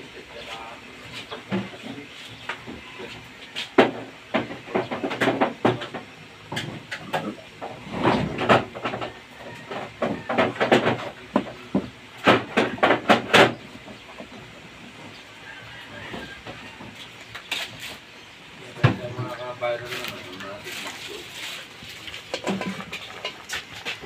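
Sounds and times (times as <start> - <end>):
sharp clicks and clattering knocks: 3.8 - 15.2, 22.1 - 24.0.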